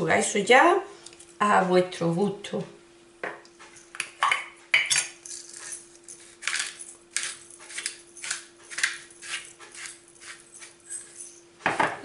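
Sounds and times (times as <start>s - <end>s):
pepper mill grinding rasps: 5.2s - 11.3s.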